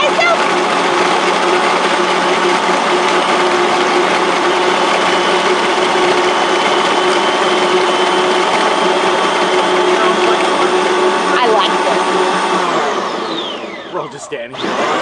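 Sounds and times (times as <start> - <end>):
drink blender motor humming: 0.0 - 15.0.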